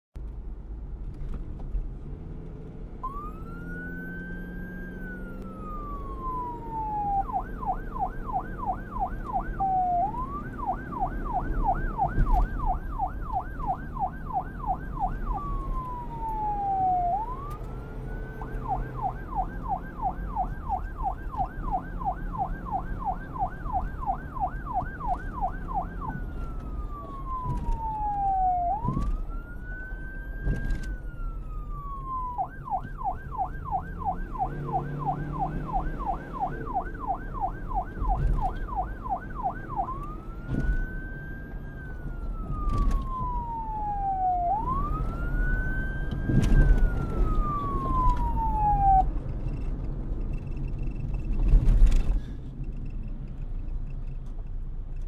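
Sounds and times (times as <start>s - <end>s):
police siren wailing and yelping: 3.0s - 49.9s.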